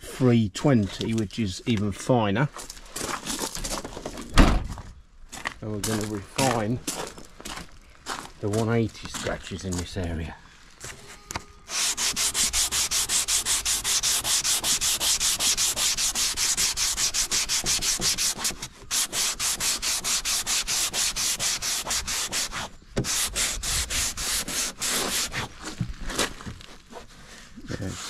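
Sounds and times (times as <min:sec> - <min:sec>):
sandpaper rubbing on fibreglass: 0:11.7 - 0:28.0.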